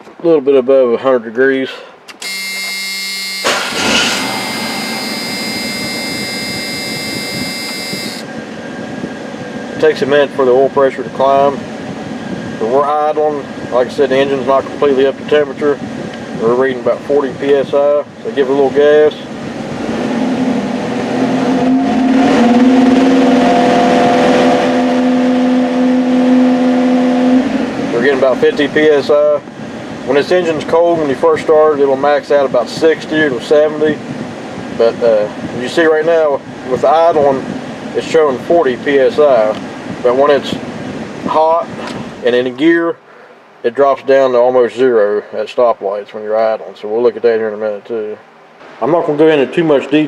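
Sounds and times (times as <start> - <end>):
high whining tones: 2.1 - 9.3
truck engine revving up: 3.2 - 8.2, 19.6 - 28.0
loud steady rush: 3.4 - 16.4.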